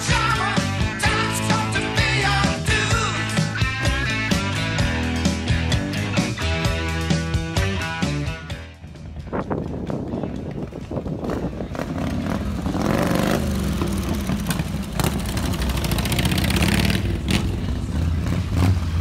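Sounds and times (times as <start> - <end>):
motorcycles rumbling and revving past: 8.8 - 19.0.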